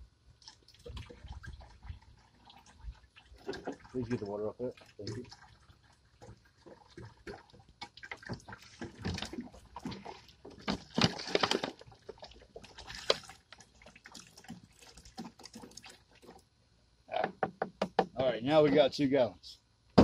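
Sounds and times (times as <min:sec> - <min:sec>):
water glugging from bottle: 0:00.4 - 0:16.4.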